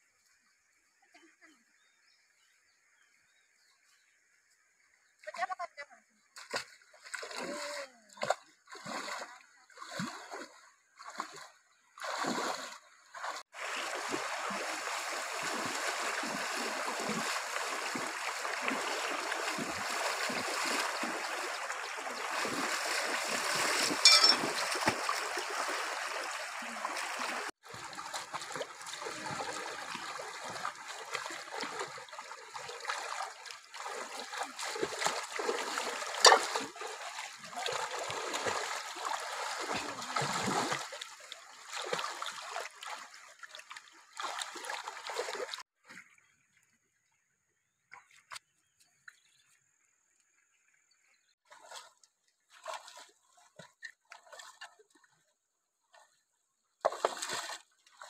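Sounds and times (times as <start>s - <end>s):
people splashing in water: 5.2s - 46.2s, 51.3s - 55.2s, 56.8s - 58.0s.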